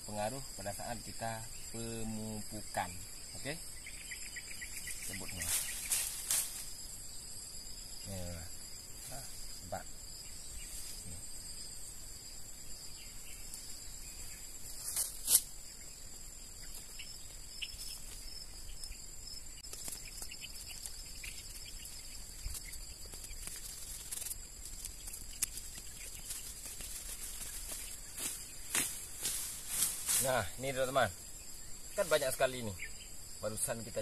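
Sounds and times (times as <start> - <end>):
high insect drone: 0.0 - 34.0
weeds rustling and snapping: 5.1 - 6.8, 19.6 - 30.6.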